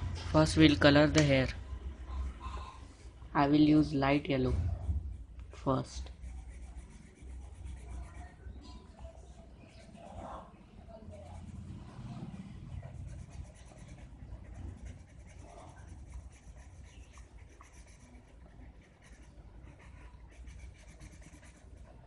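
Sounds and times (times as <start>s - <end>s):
low steady rumble: 0.0s - 8.0s
felt-tip pen scratching on paper: 6.0s - 8.5s, 12.7s - 22.0s.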